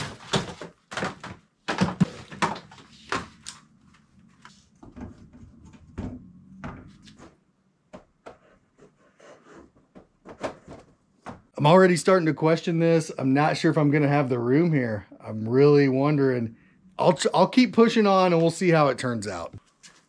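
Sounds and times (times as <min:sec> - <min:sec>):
cardboard boxes knocking and scraping: 0:00.0 - 0:03.4.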